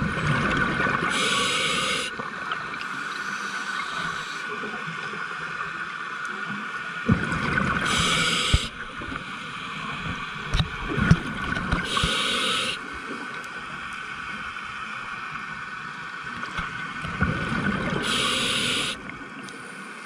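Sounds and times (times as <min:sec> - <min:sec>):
exhaled bubbles underwater: 0:00.0 - 0:02.8, 0:07.0 - 0:09.3, 0:17.0 - 0:19.2.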